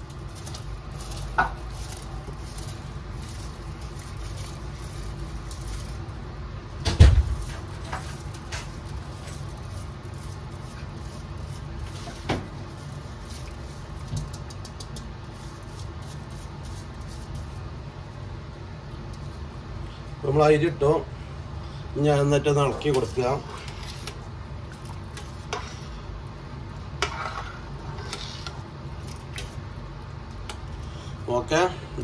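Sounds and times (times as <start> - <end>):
rice and water pattering: 0.0 - 6.4, 7.2 - 17.7, 22.6 - 31.1.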